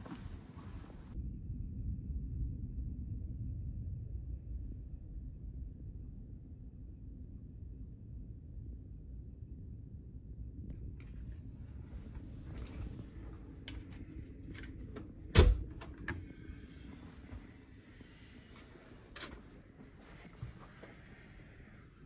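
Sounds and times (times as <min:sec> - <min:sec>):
low rumble: 0:00.0 - 0:22.0
door latch clunk: 0:15.0 - 0:16.2.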